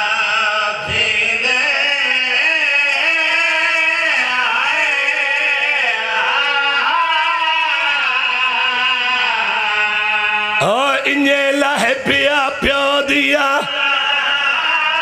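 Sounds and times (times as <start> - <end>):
man chanting a lament: 0.0 - 15.0.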